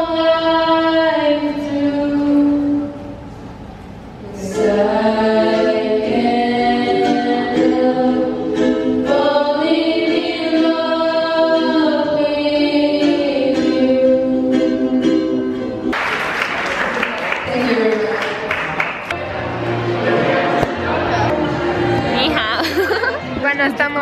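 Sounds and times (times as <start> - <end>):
women singing in harmony: 0.0 - 3.1, 4.2 - 15.6
ukulele: 4.4 - 16.0, 19.0 - 22.0.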